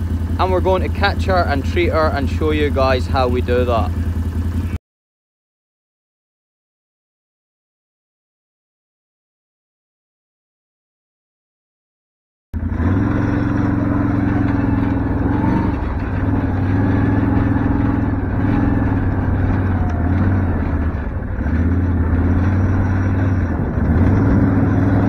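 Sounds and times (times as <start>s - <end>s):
motorbike engine running: 0.0s - 4.8s, 12.6s - 25.0s.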